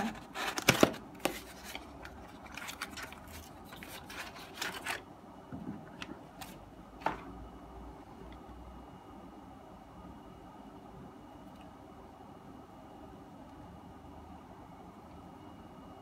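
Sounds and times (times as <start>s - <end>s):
cardboard scraping and rubbing: 0.0s - 5.0s.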